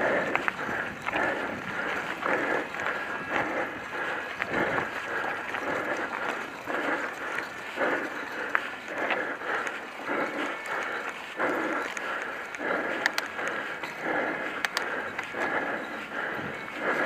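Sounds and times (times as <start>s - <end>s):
person breathing hard: 0.0s - 17.0s
light clicks and rattles: 4.2s - 16.0s.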